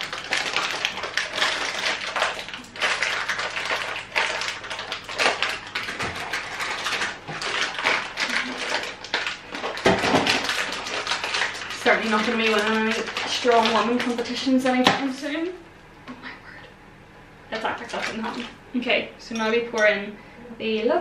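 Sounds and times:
plastic pouch crinkling: 0:00.0 - 0:14.8.

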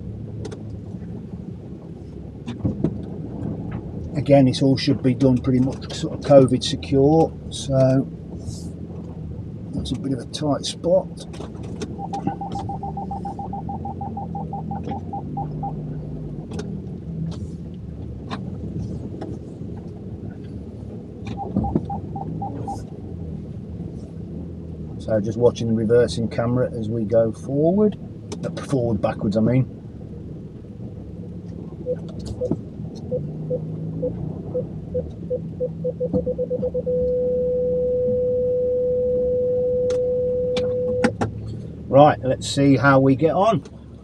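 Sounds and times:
car engine running: 0:00.0 - 0:44.0
parking sensor beeps: 0:11.9 - 0:15.8, 0:21.3 - 0:22.9, 0:31.8 - 0:41.2.

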